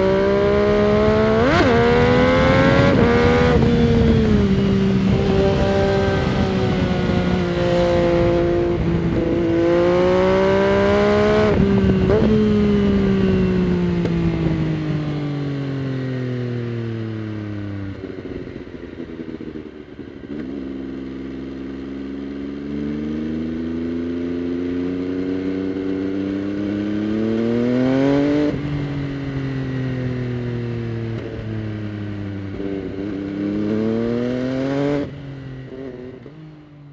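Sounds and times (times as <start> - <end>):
wind rumble on microphone: 0.0 - 15.3
motorcycle engine revving: 0.0 - 36.9.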